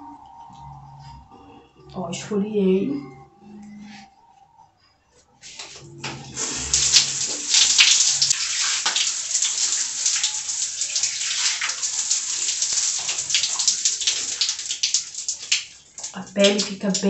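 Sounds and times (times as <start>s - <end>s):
running water splashing: 5.4s - 17.0s.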